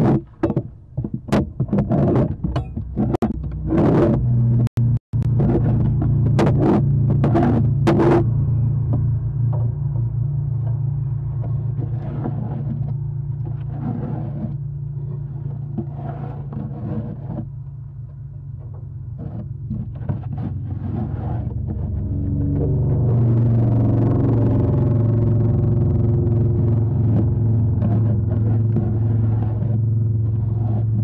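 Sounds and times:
scraping and rustling in wooden box: 0.0s - 4.2s, 10.7s - 22.8s
steady low hum: 0.0s - 31.0s.

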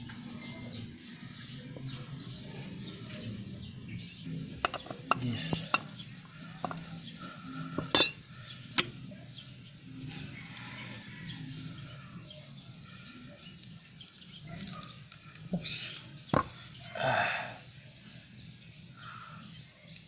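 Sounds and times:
metal tools clinking and knocking: 4.6s - 6.0s, 7.8s - 8.2s.

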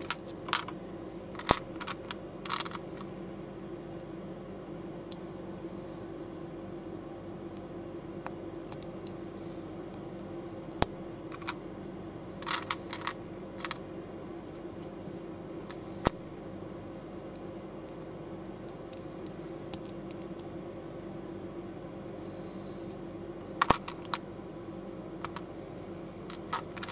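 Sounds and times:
steady hum: 0.0s - 26.9s
plastic bricks clicking: 1.4s - 2.8s, 12.4s - 13.8s, 23.6s - 24.2s, 26.3s - 26.9s.

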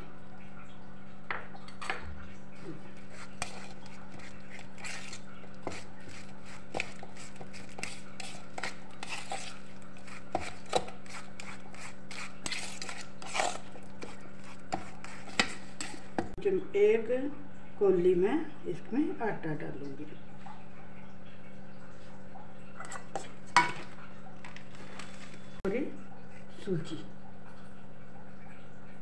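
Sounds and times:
fork scraping steel bowl: 2.6s - 16.4s, 22.8s - 23.8s.

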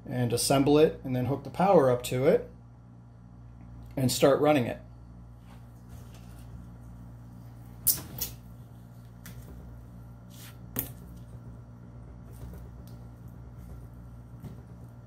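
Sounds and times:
low hum: 4.8s - 15.0s.

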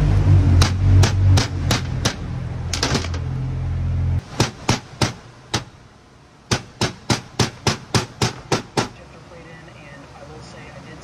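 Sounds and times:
loud low hum: 0.0s - 4.4s.

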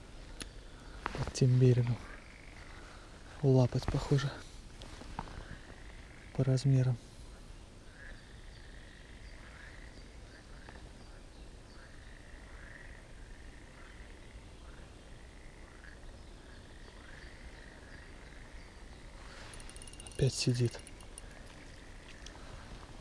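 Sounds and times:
frogs calling: 1.9s - 3.0s, 5.5s - 22.5s.

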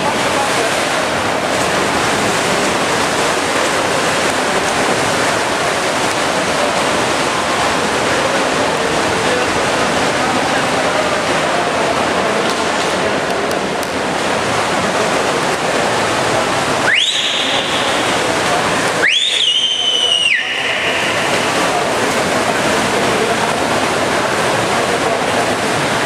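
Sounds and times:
swimming pool hall din: 0.0s - 26.0s
whistle blasts: 16.8s - 18.0s, 19.0s - 21.2s.

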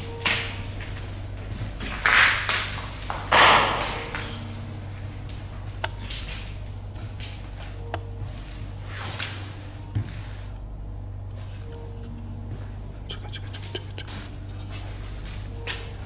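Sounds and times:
low steady hum: 0.0s - 16.0s
footsteps crunching on rubble: 0.7s - 10.6s.

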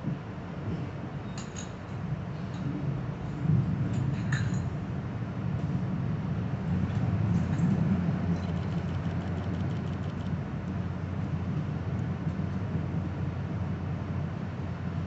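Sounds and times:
train rumble inside passenger car: 0.0s - 15.0s.

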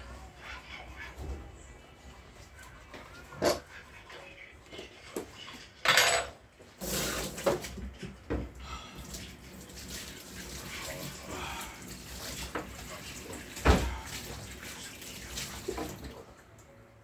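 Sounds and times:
dishes and cutlery clinking: 4.8s - 6.4s.

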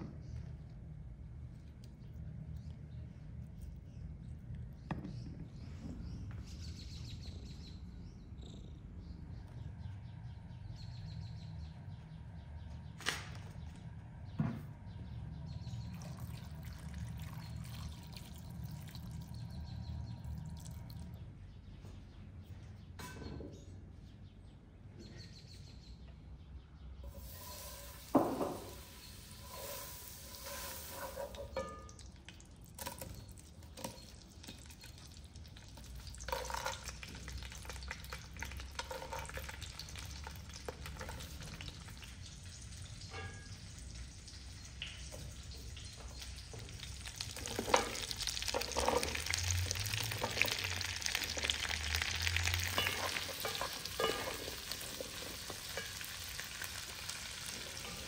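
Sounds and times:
water pouring into bowl: 15.9s - 19.6s, 46.8s - 57.9s
fat sizzling in frying pan: 27.1s - 32.1s, 34.1s - 45.1s, 46.1s - 58.0s.

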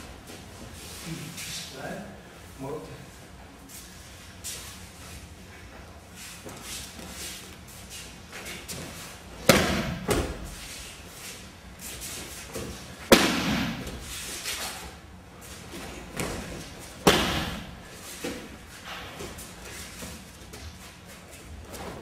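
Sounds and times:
bodies thudding on mat: 9.4s - 10.6s, 15.8s - 19.4s.

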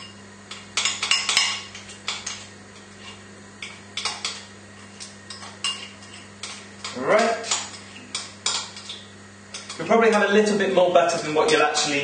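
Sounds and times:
spoon mashing butter in bowl: 0.6s - 10.3s.

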